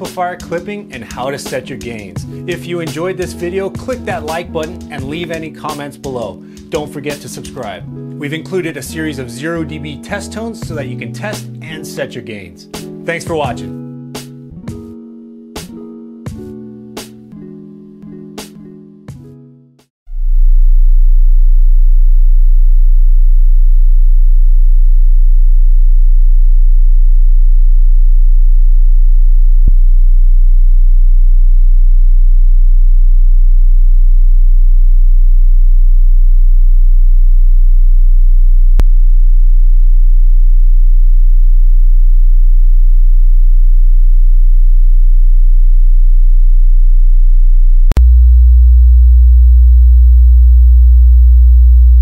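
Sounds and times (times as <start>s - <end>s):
low sine wave test tone: 20.1s - 52.0s.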